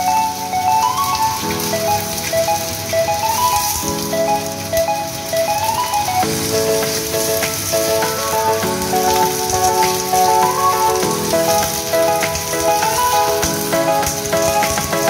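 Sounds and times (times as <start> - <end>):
steady rain-like hiss: 0.0 - 15.0.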